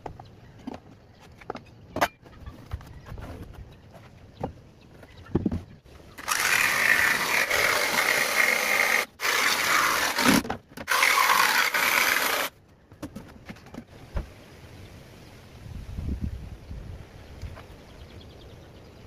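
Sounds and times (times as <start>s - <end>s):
jigsaw cutting plywood: 6.2s - 12.5s.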